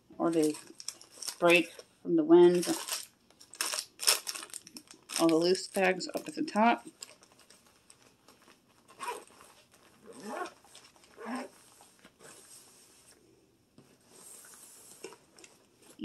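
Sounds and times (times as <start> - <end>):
fabric bag zipper: 9.0 - 9.4, 10.0 - 11.6.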